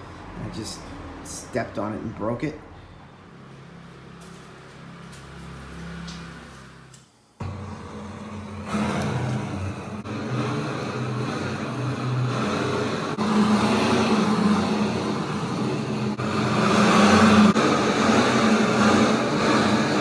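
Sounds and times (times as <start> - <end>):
gas torch hissing: 6.1 - 20.0.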